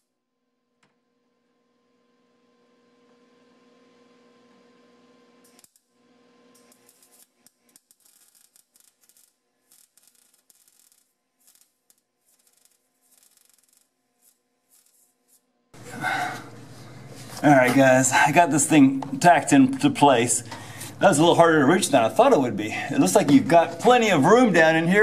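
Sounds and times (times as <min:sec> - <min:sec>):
welding arc crackling: 0:05.4 - 0:25.0
faint steady hum: 0:15.8 - 0:25.0.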